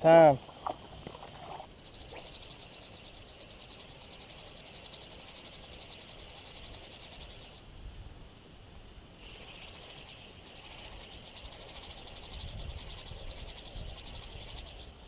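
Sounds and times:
high pulsing animal trill: 0:01.8 - 0:07.6, 0:09.2 - 0:14.9.

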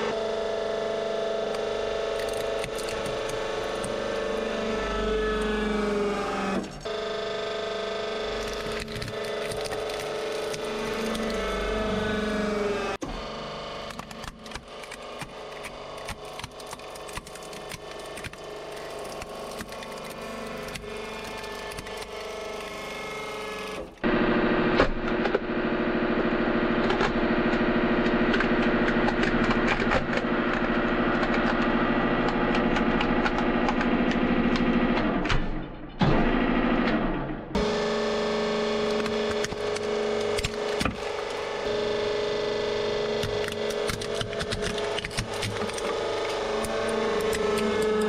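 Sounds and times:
hydraulic pump hum: 0:00.0 - 0:35.3, 0:36.4 - 0:48.0
plastic cracking and snapping: 0:02.2 - 0:04.0, 0:08.4 - 0:11.5, 0:13.9 - 0:22.9, 0:38.9 - 0:41.4, 0:43.2 - 0:48.0.

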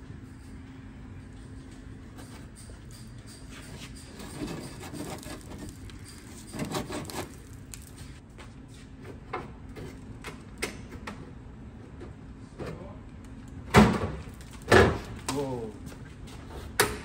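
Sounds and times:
workshop hum: 0:00.0 - 0:17.0.

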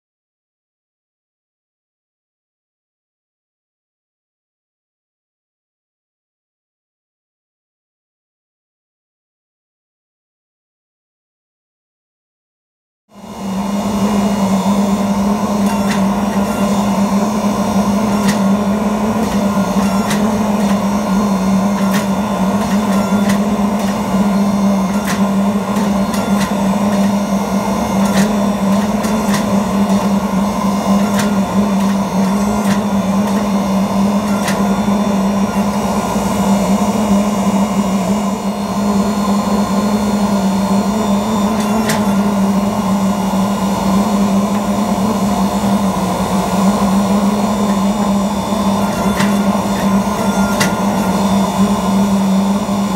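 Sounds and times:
forge press humming: 0:13.2 - 0:52.9.

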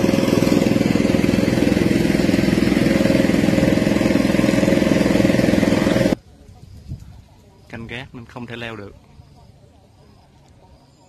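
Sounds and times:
motorboat engine puttering: 0:00.0 - 0:06.2.

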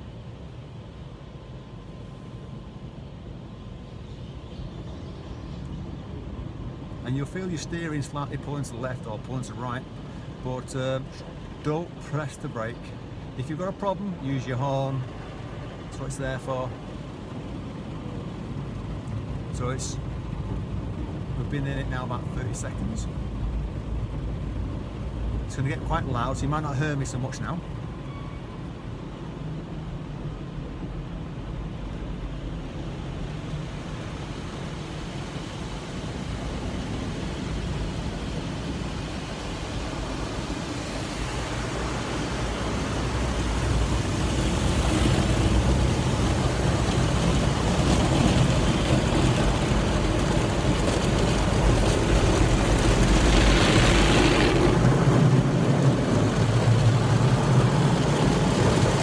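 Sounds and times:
car wash machinery rumble: 0:00.0 - 0:59.0
water spray hissing on car: 0:31.8 - 0:59.0.

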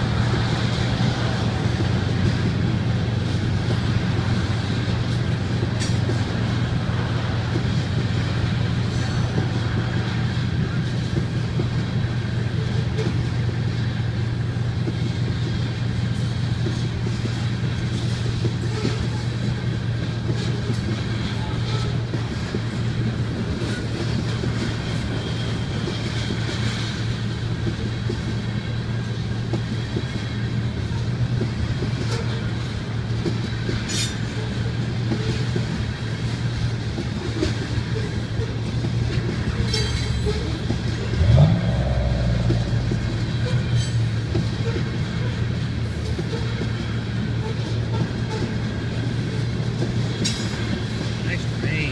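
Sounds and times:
freight train rumbling: 0:00.0 - 0:51.9
brief rising sound: 0:41.2 - 0:43.8.

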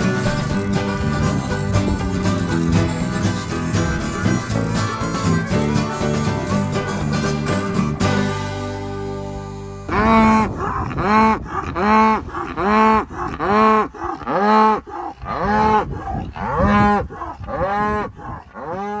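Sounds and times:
cattle mooing: 0:09.9 - 0:19.0.

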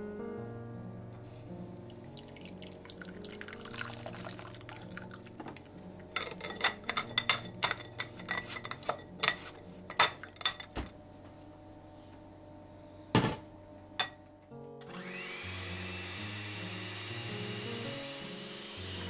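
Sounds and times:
soft background music: 0:00.0 - 0:19.0
utensil clinking against bowl: 0:06.2 - 0:10.7.

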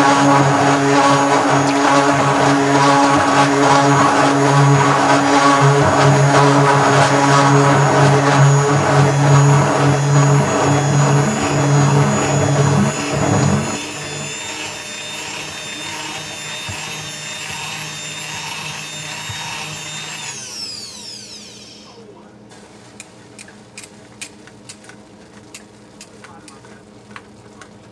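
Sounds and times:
stick blender motor whining: 0:00.0 - 0:22.0.

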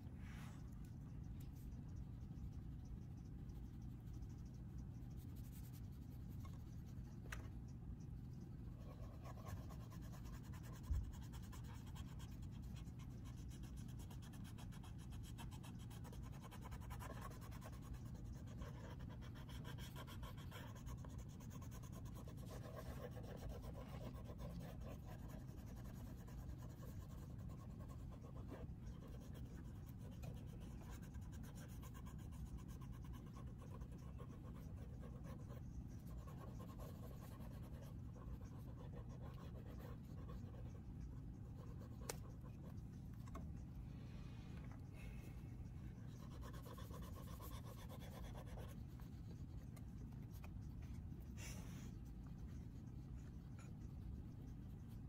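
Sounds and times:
steady low hum: 0:00.0 - 0:55.0
pastel scratching on paper: 0:00.4 - 0:43.8, 0:45.0 - 0:55.0.

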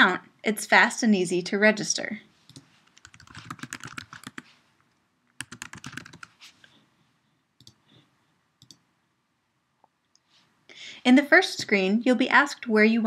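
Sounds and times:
typing on computer keyboard: 0:02.5 - 0:04.4, 0:05.4 - 0:06.4.

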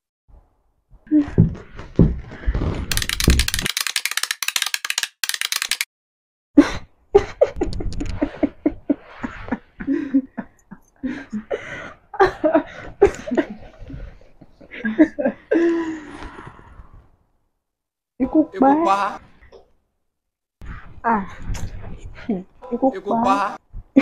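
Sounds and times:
woman laughing: 0:06.6 - 0:11.5.

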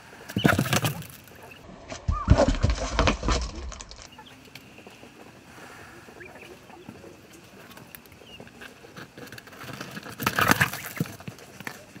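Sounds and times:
bird steps scratching on sand: 0:02.6 - 0:12.0
faint bird chirps: 0:04.1 - 0:08.6.

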